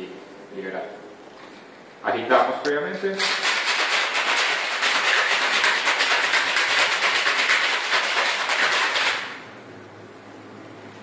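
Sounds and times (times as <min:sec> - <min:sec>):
ice rattling in cocktail shaker: 0:03.2 - 0:09.4.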